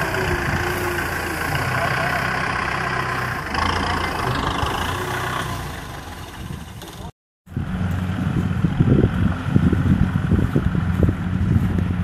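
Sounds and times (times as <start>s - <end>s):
wind rumble on microphone: 0.0s - 1.0s, 7.5s - 12.0s
tractor diesel engine running: 0.0s - 12.0s.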